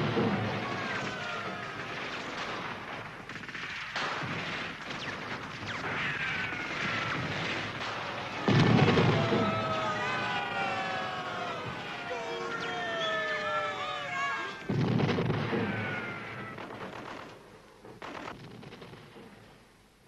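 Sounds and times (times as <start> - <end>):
gunfire: 0.0 - 12.0, 14.6 - 19.6
explosions: 0.0 - 13.7, 14.6 - 19.6
high falling whistling tones: 12.2 - 14.6.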